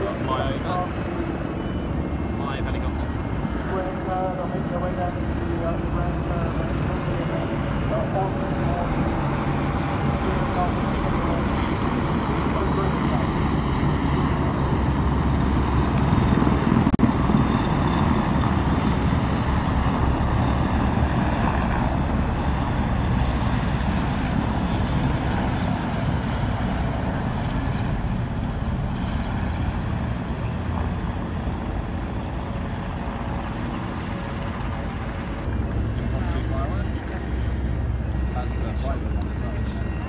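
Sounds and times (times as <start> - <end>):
helicopters flying past: 0.0 - 40.0.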